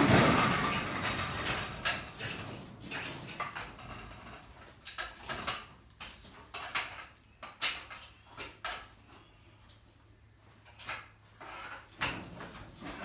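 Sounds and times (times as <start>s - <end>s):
metal clanks and rattles: 0.0s - 9.1s.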